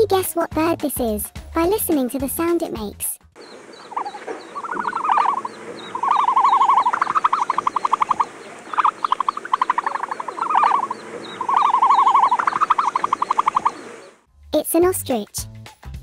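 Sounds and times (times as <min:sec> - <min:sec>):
faint high chirps: 0:03.4 - 0:14.1
fast rattling trills: 0:03.4 - 0:14.2.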